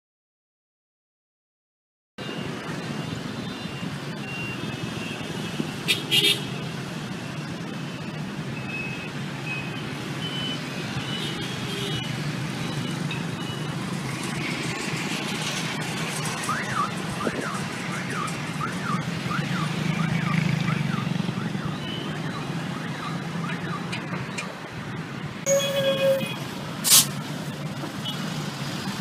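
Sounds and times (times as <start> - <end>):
city street traffic: 2.2 - 29.0
vehicle alarm wailing: 16.6 - 24.0, 25.5 - 26.5.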